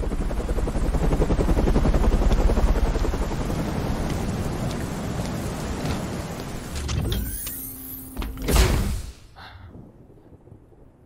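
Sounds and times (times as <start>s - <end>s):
helicopter rotor blades chopping: 0.0s - 6.8s.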